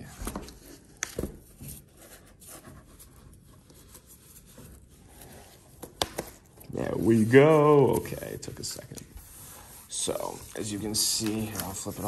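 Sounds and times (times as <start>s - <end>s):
cardboard rustling and scraping: 0.2s - 12.0s
cardboard crinkling: 9.8s - 12.0s.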